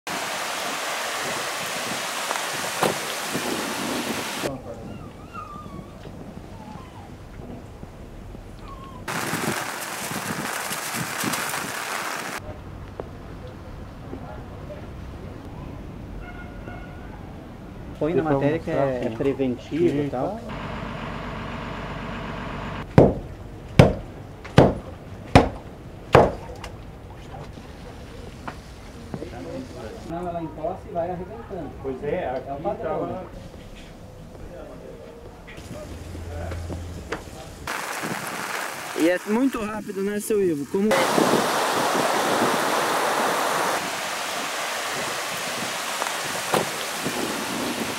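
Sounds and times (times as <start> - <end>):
floodwater rushing: 0.1 - 4.5, 9.1 - 12.5, 37.6 - 47.9.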